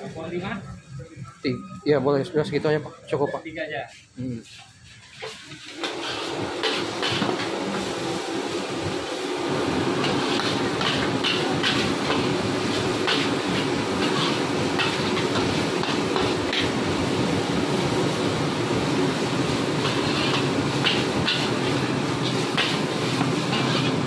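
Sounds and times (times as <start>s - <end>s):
metal spatula scraping wok: 4.4s - 7.9s, 9.9s - 16.8s, 19.5s - 24.0s
gas burner rushing: 5.1s - 24.0s.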